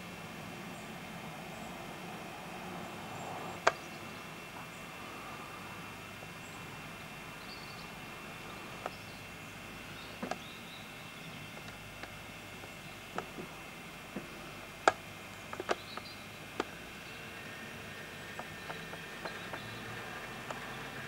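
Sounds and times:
camcorder hiss: 0.0s - 21.0s
faint high whine: 0.0s - 21.0s
sharp clicks: 11.5s - 13.4s, 14.8s - 16.8s.

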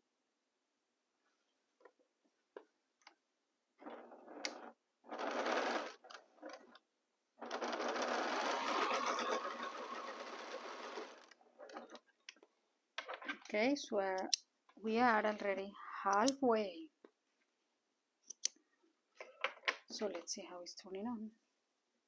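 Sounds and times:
sewing machine stitching: 3.8s - 6.8s, 7.4s - 12.0s.

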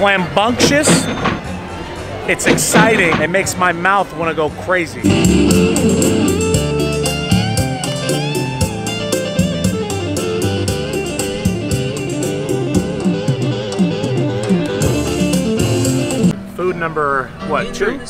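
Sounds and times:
fast instrumental music: 5.0s - 7.4s.

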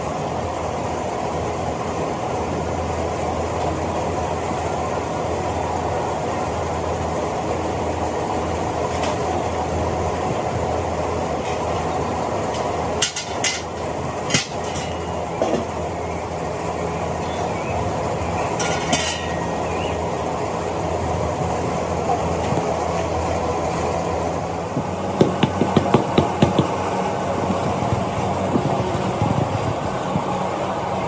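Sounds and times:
workshop machinery humming: 0.0s - 31.0s
knocks and clanks: 12.5s - 15.8s, 24.8s - 27.0s.

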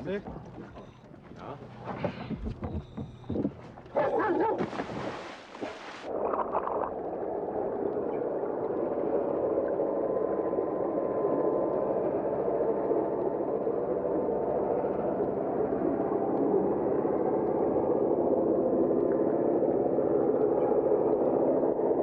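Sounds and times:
underwater drone: 0.0s - 4.0s, 4.7s - 22.0s
faint hum: 0.0s - 22.0s
splash into water: 4.2s - 7.0s.

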